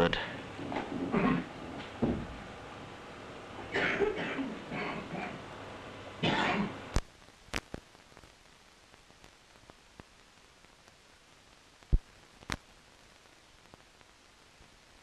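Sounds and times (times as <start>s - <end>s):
faint steady hiss: 0.0s - 15.0s
man coughing: 3.7s - 5.3s, 6.2s - 6.8s
man clearing his throat: 3.7s - 5.4s, 6.2s - 6.8s.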